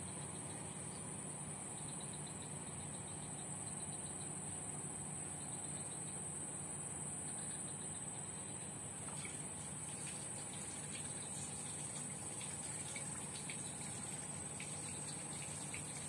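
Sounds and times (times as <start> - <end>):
high-pitched insect drone: 0.0 - 4.5, 5.3 - 6.3, 7.2 - 16.0
low hiss: 9.0 - 16.0.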